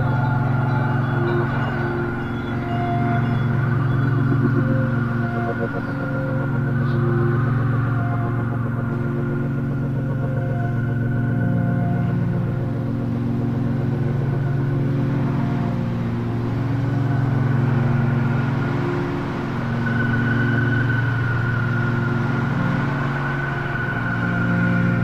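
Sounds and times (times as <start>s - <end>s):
drone music low hum: 0.0s - 25.0s.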